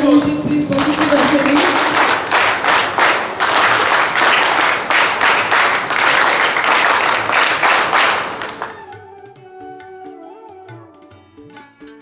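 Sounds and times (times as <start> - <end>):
audience applauding: 0.7 - 9.0.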